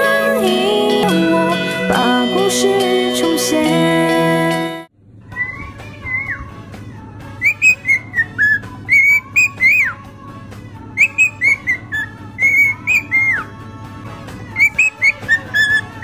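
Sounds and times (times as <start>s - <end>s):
cockatiel whistling a tune: 5.3s - 6.6s, 7.4s - 10.0s, 11.0s - 13.5s, 14.5s - 16.0s.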